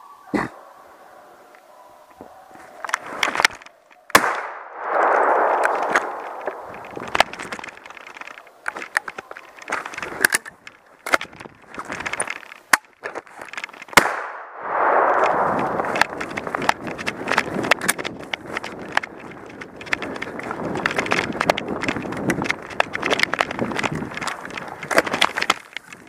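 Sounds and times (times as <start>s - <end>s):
rushing and rustling noise: 2.6s - 26.0s
shotgun metallic clicks and knocks: 6.0s - 14.1s, 16.0s - 26.0s.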